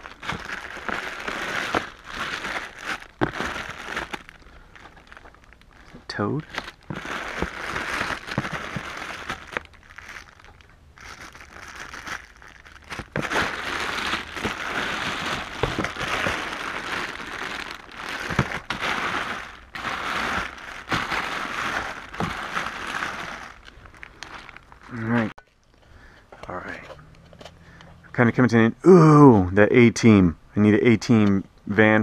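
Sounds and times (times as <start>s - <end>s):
plastic bags crinkling: 0.0s - 25.3s.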